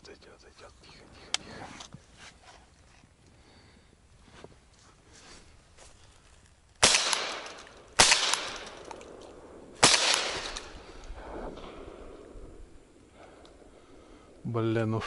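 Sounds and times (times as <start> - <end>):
shotgun shots with echo: 6.8 - 8.9, 9.8 - 12.2.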